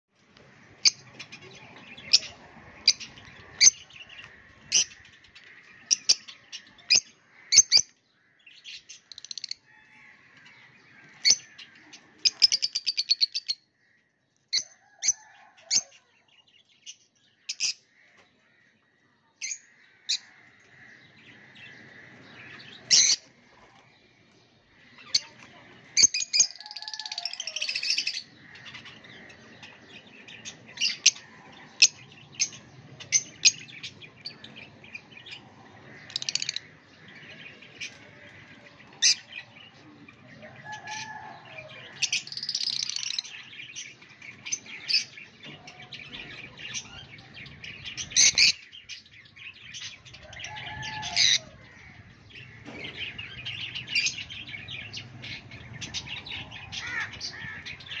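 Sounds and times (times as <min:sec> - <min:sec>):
parrots chirping and screeching: 0:48.0 - 0:49.0, 0:49.7 - 0:52.0, 0:55.0 - 0:58.0.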